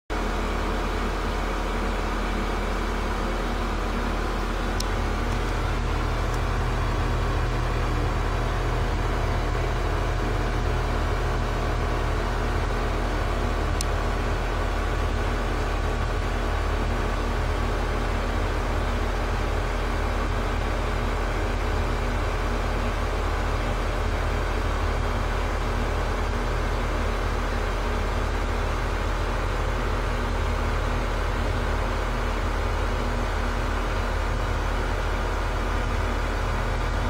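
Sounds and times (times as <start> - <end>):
low mechanical hum: 0.1 - 37.0.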